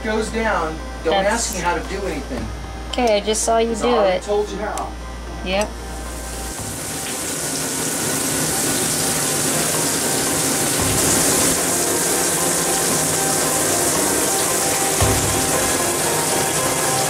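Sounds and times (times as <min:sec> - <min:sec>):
water rushing in a bathtub: 0:06.2 - 0:17.0.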